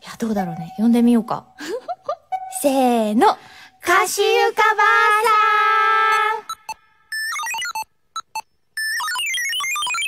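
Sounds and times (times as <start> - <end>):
electronic call ringtone: 6.5 - 10.0.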